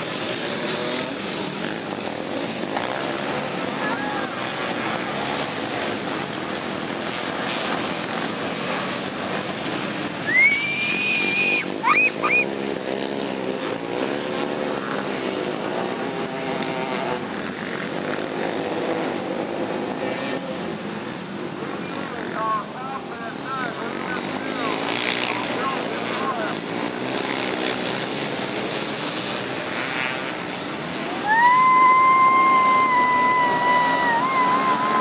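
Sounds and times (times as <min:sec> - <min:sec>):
racing engines revving: 0:00.0 - 0:35.0
loud held whistle: 0:10.2 - 0:12.5, 0:31.2 - 0:35.0
short rising whistles: 0:10.2 - 0:12.5.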